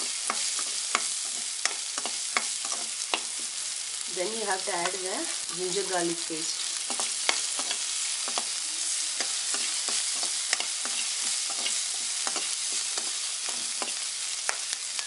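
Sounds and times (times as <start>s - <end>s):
food sizzling in hot oil: 0.0s - 15.0s
spatula scraping pan: 6.8s - 14.1s.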